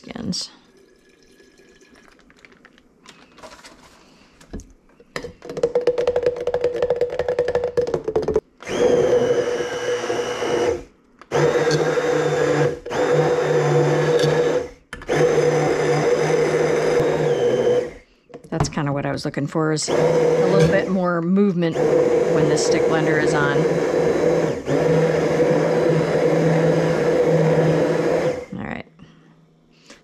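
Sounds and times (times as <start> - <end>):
stick blender pureeing: 5.4 - 19.1, 19.9 - 28.5.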